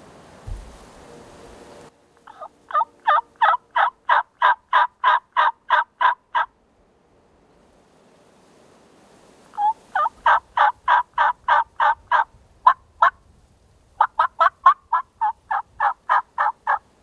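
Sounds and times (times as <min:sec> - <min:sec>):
wild turkey yelping: 0:02.2 - 0:06.5, 0:09.6 - 0:13.2, 0:14.0 - 0:16.9.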